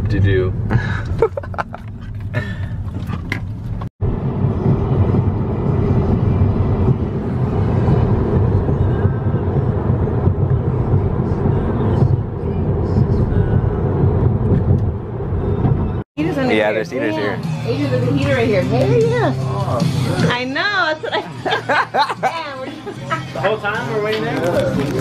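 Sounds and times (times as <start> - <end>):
car interior noise: 0.0 - 16.0
music with pulsing bass: 15.6 - 25.0.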